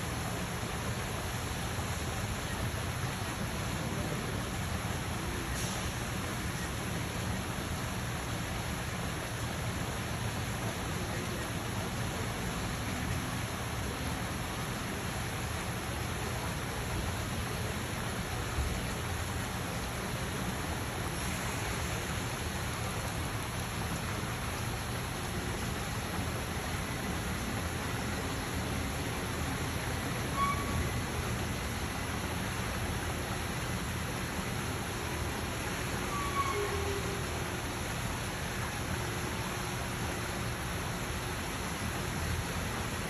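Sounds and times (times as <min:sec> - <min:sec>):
steady even hiss: 0:00.0 - 0:43.0.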